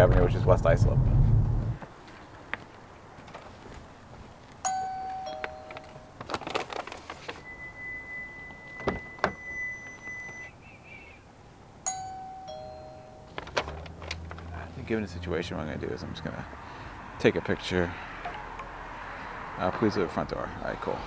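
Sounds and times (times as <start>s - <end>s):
doorbell ding-dong chime: 4.7s - 6.1s, 11.9s - 13.4s
plastic bag rustling: 5.3s - 7.6s, 13.2s - 14.6s.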